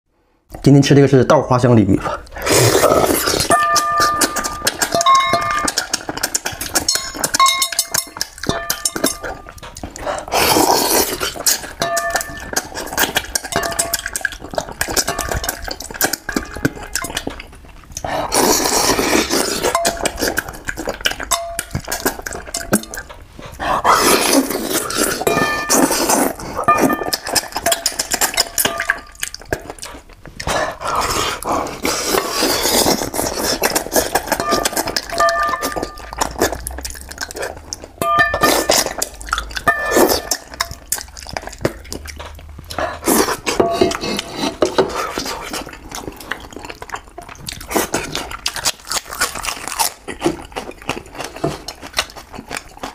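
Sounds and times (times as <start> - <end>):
chewing and sucking: 2.0 - 52.9
chopsticks tapping brass bowl: 3.5 - 5.8, 6.9 - 9.6, 11.8 - 12.6, 21.3 - 21.9, 34.4 - 36.2, 38.0 - 40.9.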